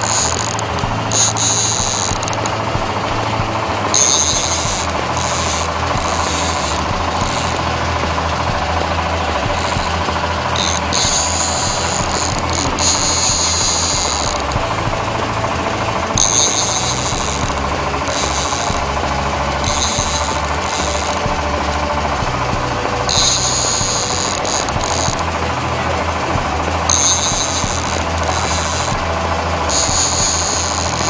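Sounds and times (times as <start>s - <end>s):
boat engine humming: 0.0s - 31.0s.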